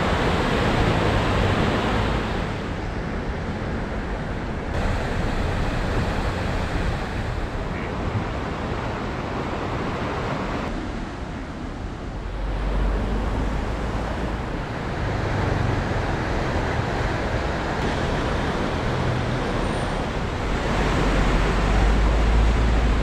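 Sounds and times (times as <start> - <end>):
river rushing: 0.0 - 23.0
wind rumble on microphone: 0.0 - 23.0.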